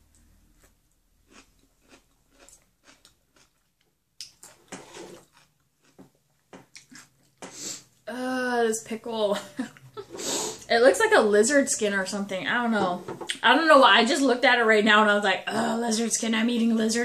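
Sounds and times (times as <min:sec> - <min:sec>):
chewing crunchy pickle: 0:00.6 - 0:07.4.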